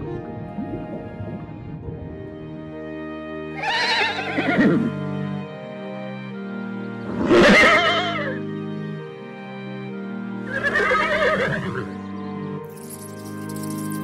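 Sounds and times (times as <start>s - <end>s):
soft piano music: 0.0s - 3.5s
zebra whinny-like call: 3.6s - 4.8s, 7.2s - 8.4s.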